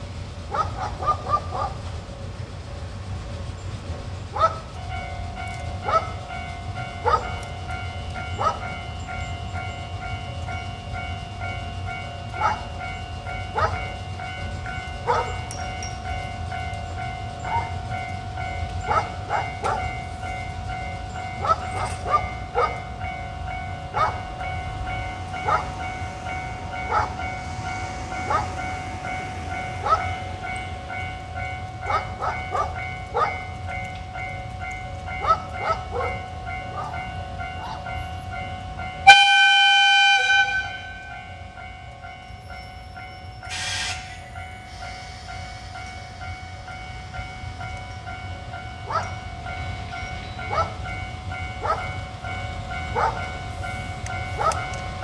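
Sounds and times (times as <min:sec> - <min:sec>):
locomotive whine: 0:00.0 - 0:55.0.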